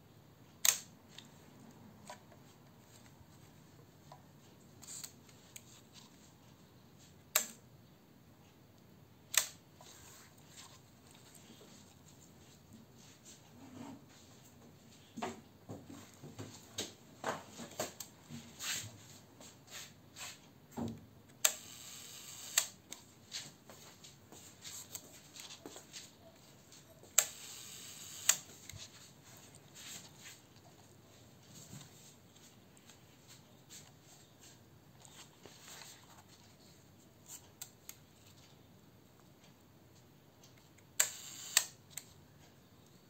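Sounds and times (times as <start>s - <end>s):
camera shutter clicks: 21.4s - 22.8s, 27.2s - 28.5s, 41.0s - 41.8s
faint shutter timer whirring: 21.4s - 23.0s, 27.1s - 28.8s, 37.3s - 42.8s.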